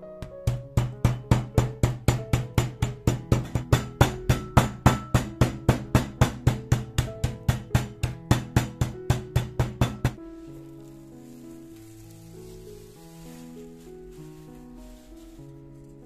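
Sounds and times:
soft background music: 0.0s - 16.0s.

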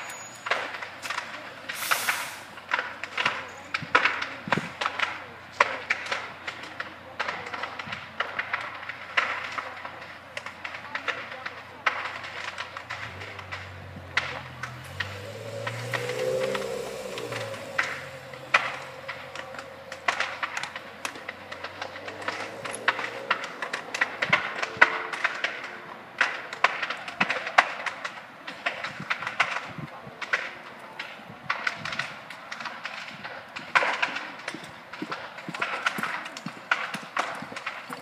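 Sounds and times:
car engine driving past: 12.7s - 27.0s.

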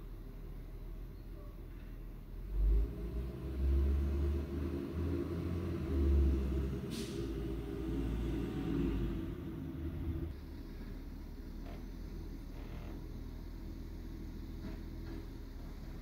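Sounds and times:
garbage truck engine accelerating: 2.4s - 16.0s
short hiss: 6.9s - 7.3s.

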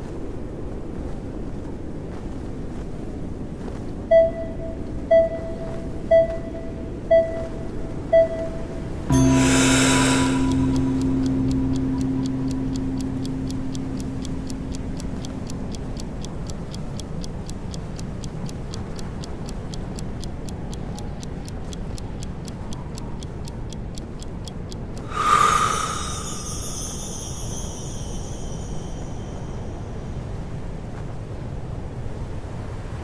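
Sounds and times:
low ringing tone: 4.1s - 16.5s, 25.0s - 30.2s
sudden loud swell: 9.1s - 15.8s, 25.0s - 29.2s
rapid even ticking: 9.1s - 29.5s.

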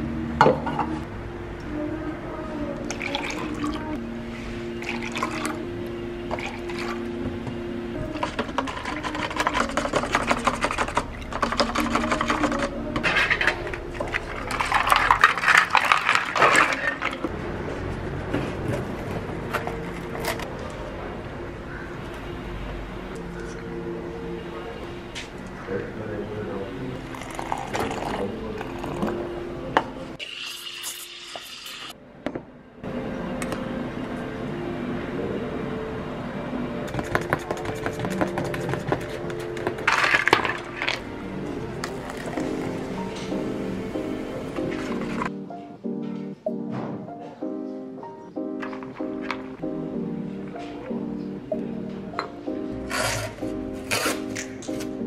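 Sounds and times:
soft background music: 0.0s - 30.4s, 31.9s - 55.0s
spoon stirring in paper cups: 4.8s - 5.6s, 6.3s - 7.0s, 8.0s - 17.3s, 18.4s - 20.6s, 36.9s - 43.4s, 44.6s - 45.3s
ice cubes clattering into cups: 8.1s - 17.3s, 39.6s - 41.0s.

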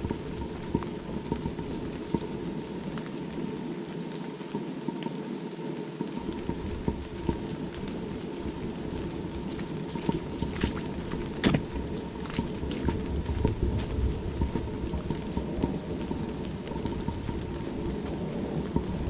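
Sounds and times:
rain falling through trees: 0.0s - 19.0s
sharp taps of raindrops: 0.0s - 19.0s
low rumble: 6.3s - 19.0s.

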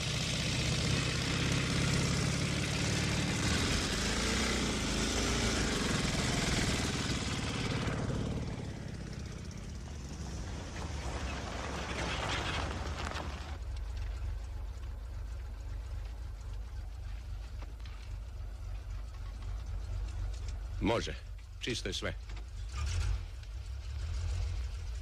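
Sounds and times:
motorcycle engine passing by: 0.0s - 13.6s.

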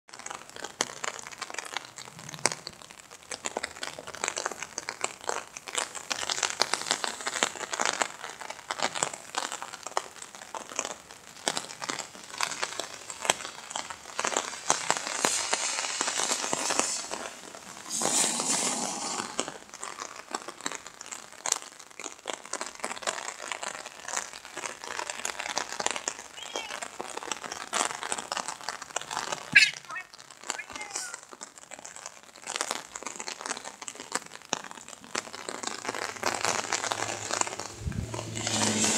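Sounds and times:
rain pattering on an umbrella: 0.0s - 38.9s
rush of noise: 36.9s - 38.9s.

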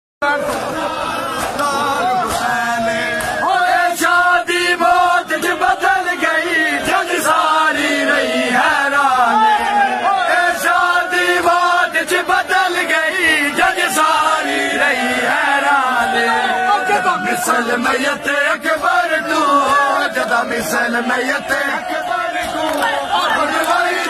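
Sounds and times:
men chanting a lament: 0.2s - 24.0s
hands slapping chests: 0.4s - 4.2s, 22.3s - 23.9s.

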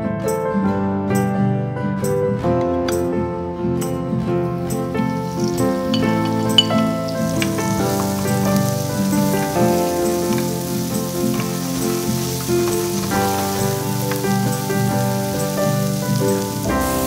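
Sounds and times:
background music: 0.0s - 17.0s
mushrooms sizzling in oil: 4.6s - 17.0s
wooden spatula stirring: 5.2s - 17.0s.

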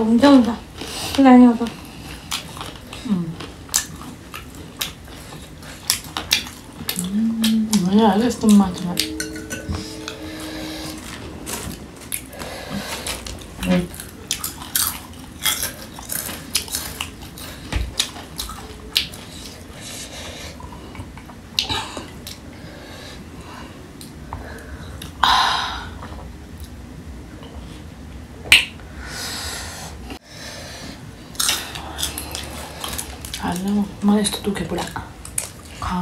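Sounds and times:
chewing and crunching: 1.7s - 7.9s, 12.9s - 19.8s, 31.3s - 35.9s.

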